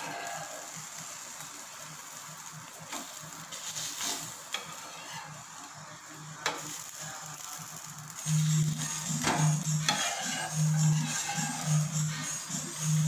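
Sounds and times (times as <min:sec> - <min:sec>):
omelette sizzling on griddle: 0:00.0 - 0:13.0
metal spatula scraping: 0:03.0 - 0:05.6, 0:08.2 - 0:13.0.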